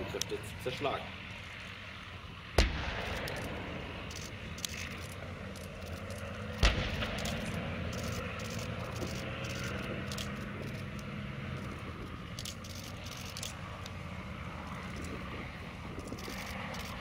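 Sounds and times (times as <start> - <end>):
armored vehicle engines droning: 0.0 - 17.0
heavy weapon blasts with rumble: 6.6 - 7.6.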